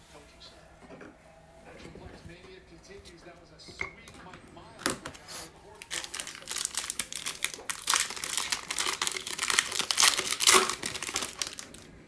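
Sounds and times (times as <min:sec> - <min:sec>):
foil wrapper being torn: 0:04.8 - 0:11.9
foil wrapper crinkling: 0:04.8 - 0:12.0.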